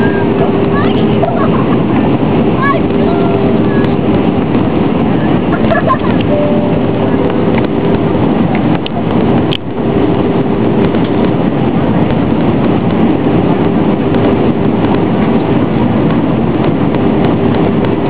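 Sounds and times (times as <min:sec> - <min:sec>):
airliner cabin noise: 0:00.0 - 0:18.0.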